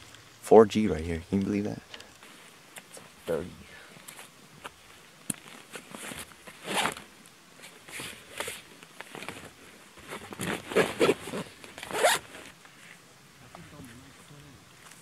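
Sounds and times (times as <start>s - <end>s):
fabric rustling: 4.0s - 13.0s
zippers being pulled: 5.4s - 7.1s, 7.7s - 12.5s.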